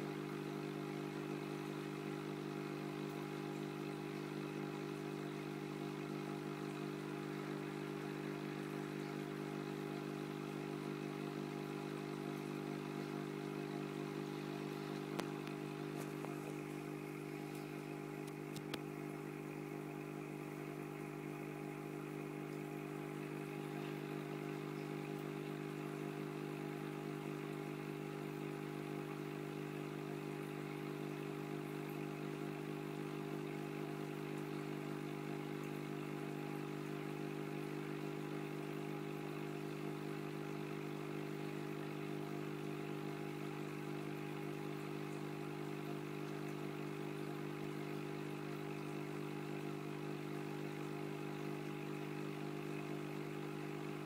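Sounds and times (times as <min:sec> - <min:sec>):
aquarium equipment hum: 0:00.0 - 0:54.0.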